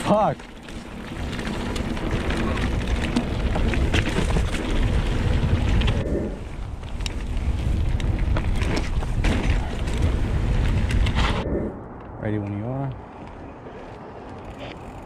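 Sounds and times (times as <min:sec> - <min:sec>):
bike knocking and rattling: 0:00.0 - 0:11.2
bike tyres on dirt: 0:00.0 - 0:11.7
wind rumbling on microphone: 0:00.0 - 0:15.0.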